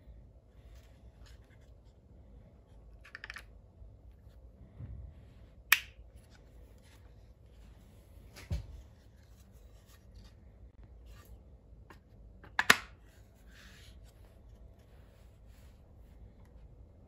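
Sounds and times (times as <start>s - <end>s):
plastic clicks and handling noise: 2.9s - 3.6s.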